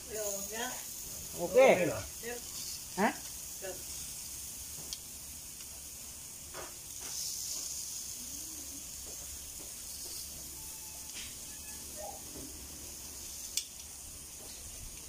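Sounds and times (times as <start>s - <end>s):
meat sizzling on a grill: 0.0s - 15.0s.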